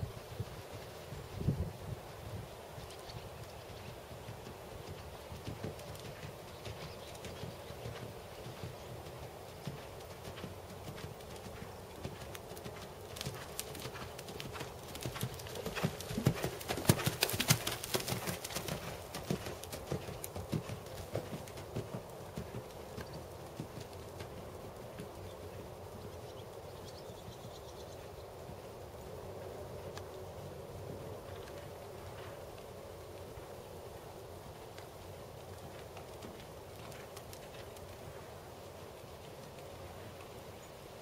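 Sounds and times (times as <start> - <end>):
horse hoofbeats cantering on sand: 3.4 - 26.5, 34.4 - 40.3.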